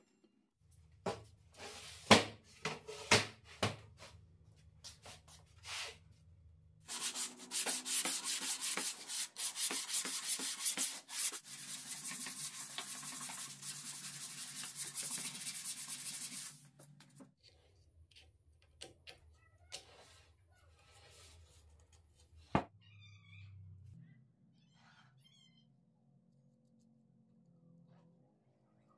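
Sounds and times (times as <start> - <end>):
sanding block on plywood: 6.9 - 16.6.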